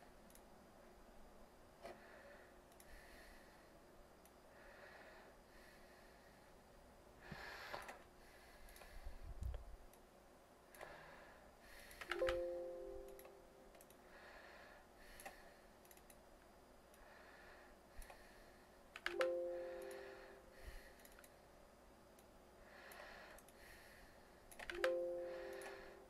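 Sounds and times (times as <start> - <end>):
clicks: 11.9 - 14.0, 18.9 - 20.1, 24.5 - 25.8.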